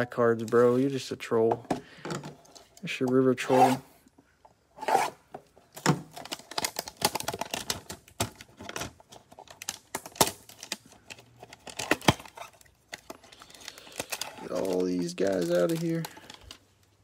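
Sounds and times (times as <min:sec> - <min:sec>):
plastic shrink-wrap crinkling: 0:06.1 - 0:17.0.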